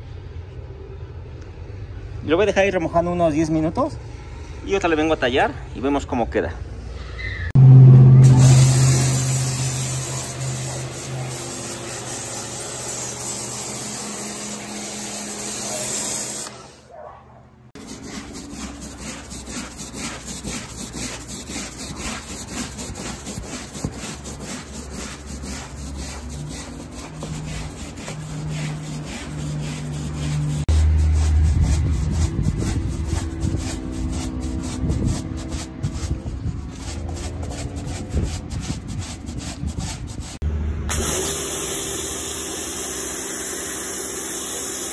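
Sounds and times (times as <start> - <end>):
broom scrubbing carpet: 8.2 - 16.8, 17.8 - 40.4
pressure washer spraying hiss: 8.2 - 16.8.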